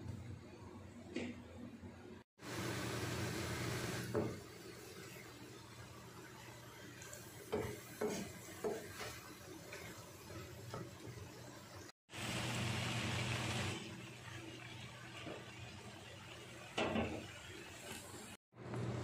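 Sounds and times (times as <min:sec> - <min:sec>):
wooden spoon stirring in pan: 0:04.2 - 0:11.9.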